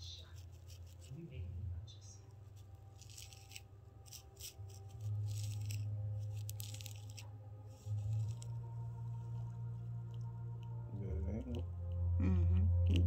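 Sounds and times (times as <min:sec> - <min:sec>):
comb scratching through hair: 0:00.0 - 0:01.3, 0:02.4 - 0:08.6
low steady hum: 0:00.0 - 0:13.0.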